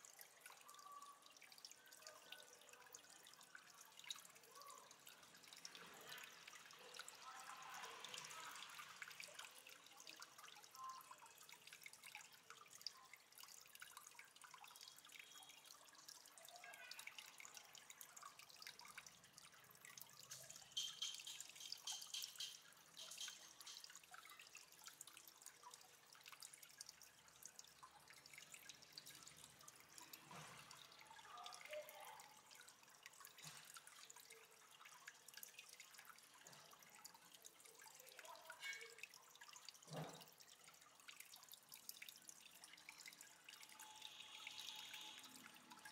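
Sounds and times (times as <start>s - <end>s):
water trickling and dripping: 0.0s - 45.9s
bubbling plinks: 17.2s - 45.9s.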